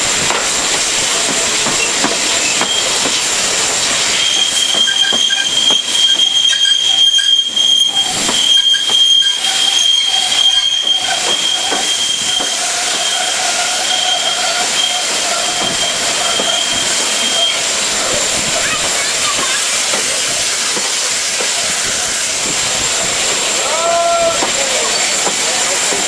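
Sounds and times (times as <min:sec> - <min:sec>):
train running gear squealing: 0:00.8 - 0:23.0, 0:23.8 - 0:26.0.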